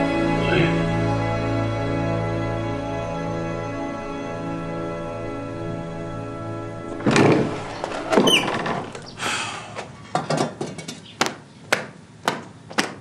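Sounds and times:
squealing door hinge: 0:05.2 - 0:09.6
wooden door thudding: 0:06.8 - 0:09.4.

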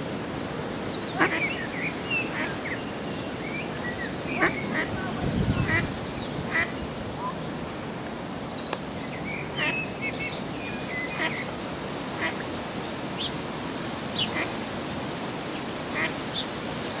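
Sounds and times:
steady background hiss: 0:00.0 - 0:17.0
ducklings peeping: 0:01.1 - 0:02.7, 0:03.9 - 0:06.8.

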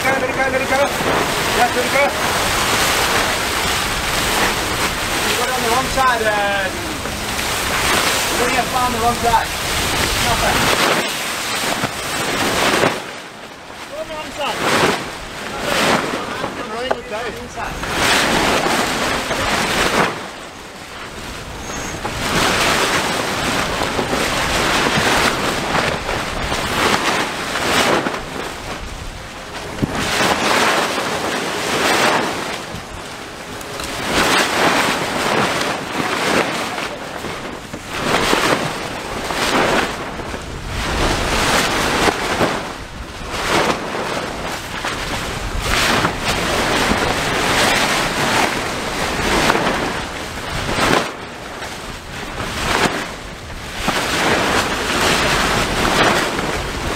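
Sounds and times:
sea wash: 0:00.0 - 0:56.9
wind buffeting microphone: 0:00.0 - 0:56.9.

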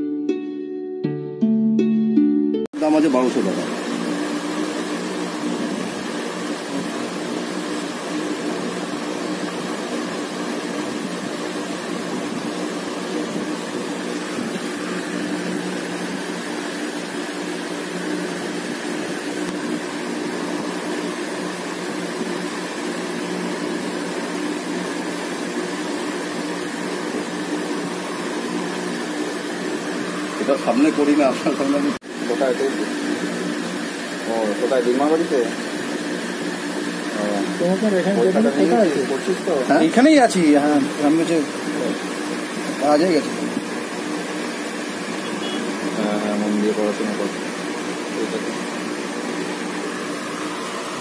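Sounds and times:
steady mechanical hum with hiss: 0:02.8 - 0:51.0.

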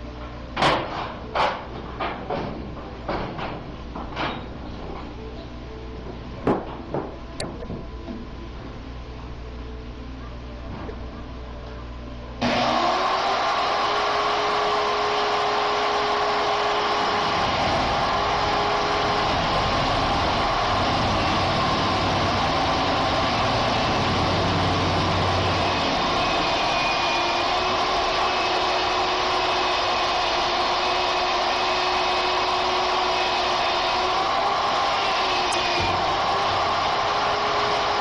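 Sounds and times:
drill press drilling steel: 0:12.4 - 0:38.0.

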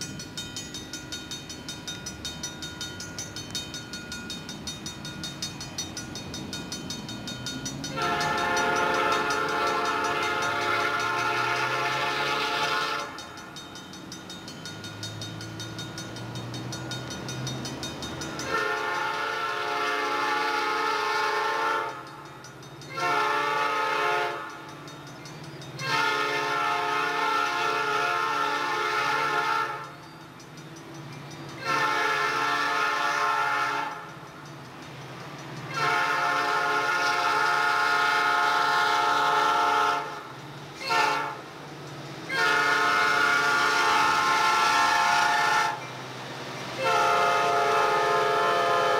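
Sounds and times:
locomotive air horn blasts: 0:07.9 - 0:13.2, 0:18.4 - 0:22.1, 0:22.9 - 0:24.5, 0:25.8 - 0:29.9, 0:31.6 - 0:34.0, 0:35.7 - 0:41.5, 0:42.3 - 0:45.8, 0:46.8 - 0:48.9.

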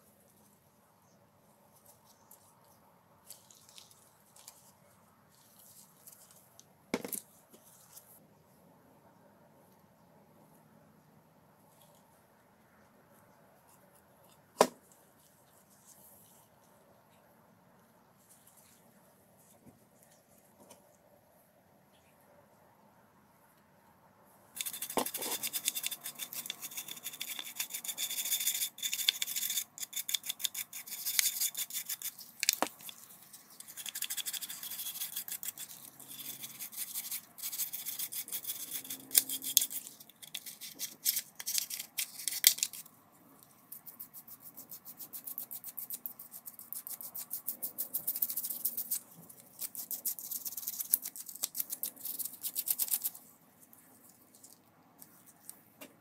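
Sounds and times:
toothbrush scrubbing plastic: 0:24.6 - 0:55.6.

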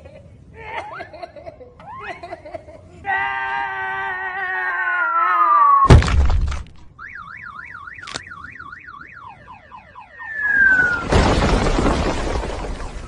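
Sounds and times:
cartoon crash: 0:05.8 - 0:06.6, 0:10.3 - 0:13.0
warbling alarm tone: 0:07.0 - 0:11.1
falling whistle: 0:10.2 - 0:11.1.

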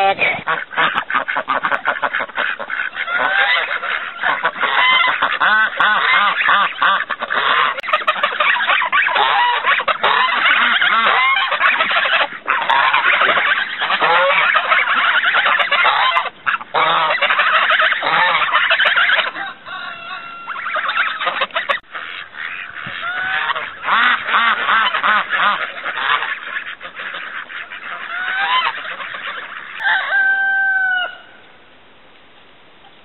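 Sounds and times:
geese honking: 0:00.0 - 0:31.4.

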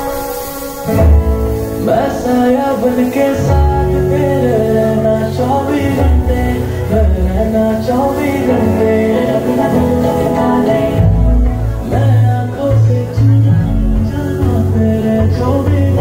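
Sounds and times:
song with heavy bass: 0:00.0 - 0:16.0.

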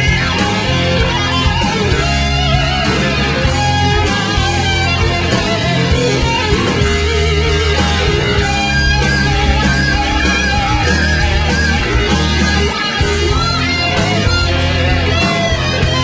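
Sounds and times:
drums: 0:00.0 - 0:16.0
electric guitar: 0:00.0 - 0:16.0
low bass notes: 0:00.0 - 0:16.0.

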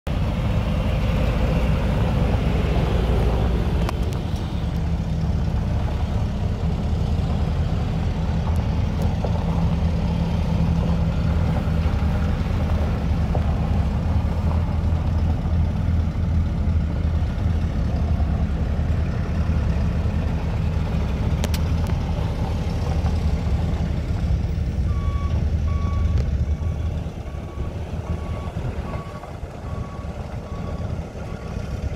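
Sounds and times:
truck engine running: 0:00.1 - 0:31.9
reversing alarm beeps: 0:24.9 - 0:31.5.

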